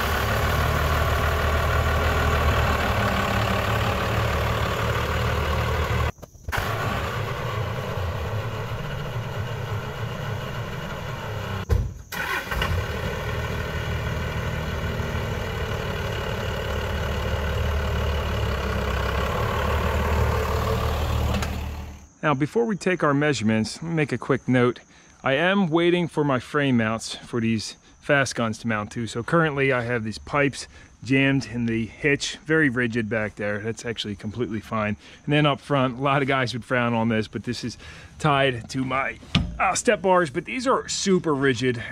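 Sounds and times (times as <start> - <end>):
truck engine running at low speed: 0.0 - 22.2.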